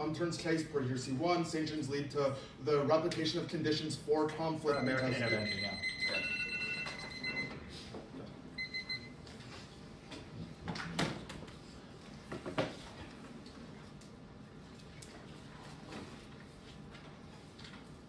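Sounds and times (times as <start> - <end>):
electronic timer alarm beeping: 4.7 - 7.6, 8.6 - 9.2.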